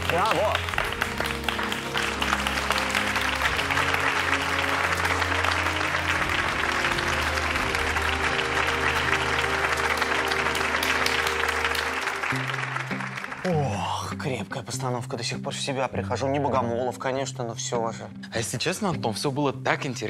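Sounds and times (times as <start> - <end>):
applause: 0.0 - 13.8.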